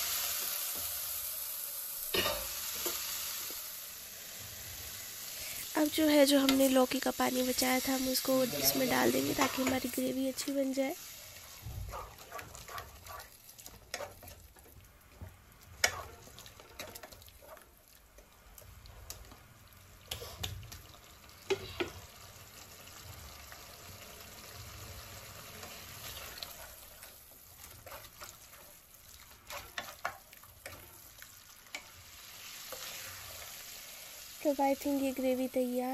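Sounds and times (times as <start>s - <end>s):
faint sizzle: 0.0s - 35.9s
spoon stirring and scraping a pan: 2.1s - 3.1s, 7.9s - 10.2s, 11.3s - 19.5s, 20.1s - 22.1s, 24.9s - 34.2s.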